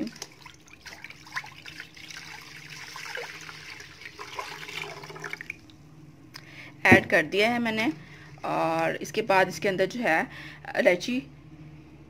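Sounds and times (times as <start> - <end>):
milk pouring and splashing: 0.0 - 5.8.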